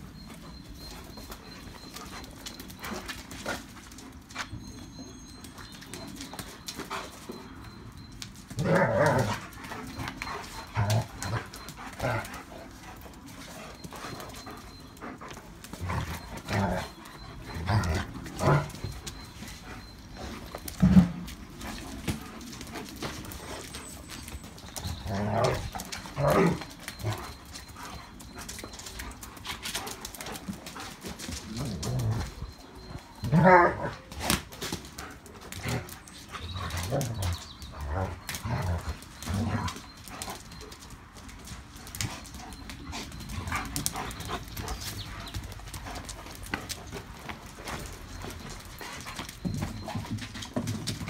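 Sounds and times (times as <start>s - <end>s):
dogs growling: 8.5s - 34.2s, 35.1s - 40.8s.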